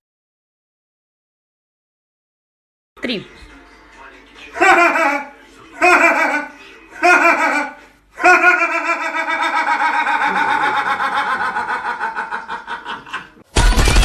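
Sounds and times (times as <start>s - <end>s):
man laughing: 4.6s - 13.4s
loud music: 13.5s - 14.0s.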